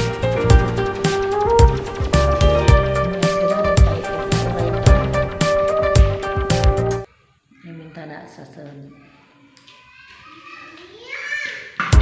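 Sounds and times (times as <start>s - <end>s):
background music with drum beat: 0.0s - 7.1s.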